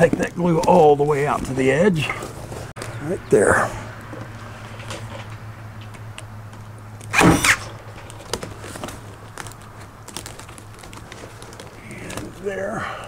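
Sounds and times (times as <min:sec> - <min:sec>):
staple gun bang: 0:07.1 - 0:07.7.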